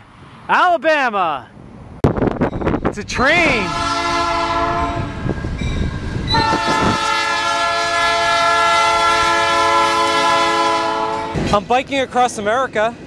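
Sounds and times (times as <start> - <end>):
locomotive air horn: 3.6 - 5.3, 6.3 - 11.4.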